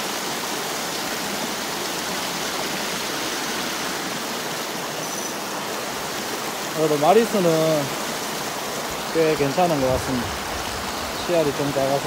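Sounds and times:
stream flowing over stones: 0.0 - 12.0.

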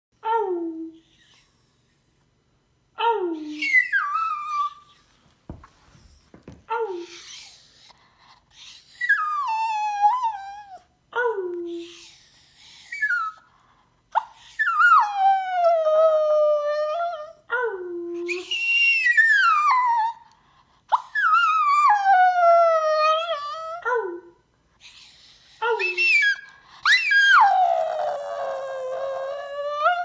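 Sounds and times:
dog howling: 25.8 - 30.0.

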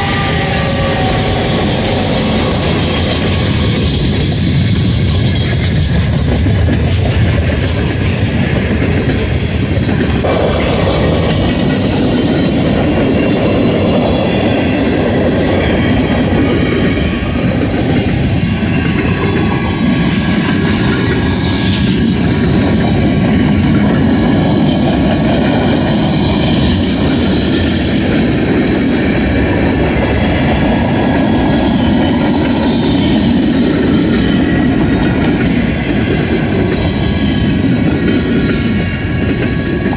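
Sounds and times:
freight train wheels rumbling: 0.0 - 39.9.

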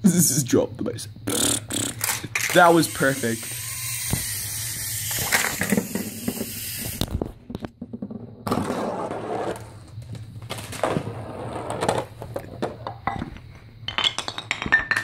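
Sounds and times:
golf ball rolling and knocking: 5.6 - 15.0
wooden blocks toppling clacks: 9.8 - 15.0.

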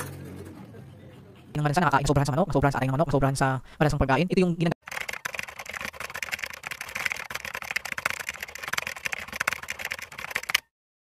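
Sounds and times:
fast keyboard key clicks: 4.8 - 10.7.

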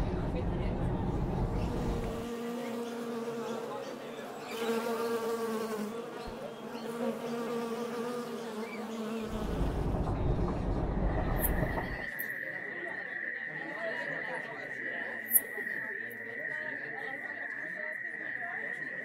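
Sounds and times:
low rumble: 0.0 - 2.2, 9.3 - 12.1
wasp buzzing: 1.6 - 10.0.

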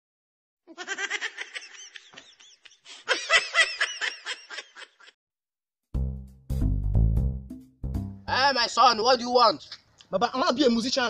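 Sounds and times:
high-pitched laughter: 0.7 - 5.2.

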